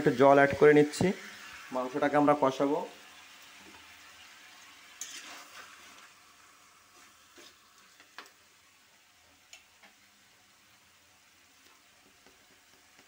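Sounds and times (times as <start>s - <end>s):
chicken sizzling in wok: 0.0s - 13.0s
spatula scraping wok: 3.6s - 8.4s.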